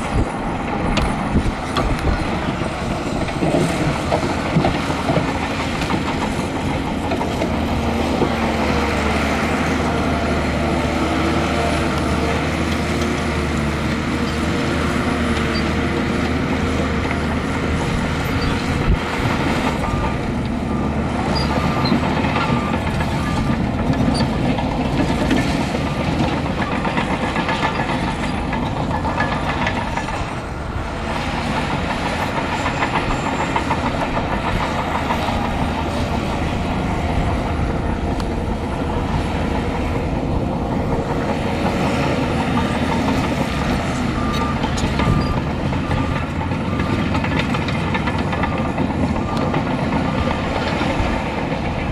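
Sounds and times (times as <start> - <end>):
bulldozer diesel engine: 0.0 - 51.9
reversing alarm beeps: 17.0 - 36.6, 41.7 - 51.3.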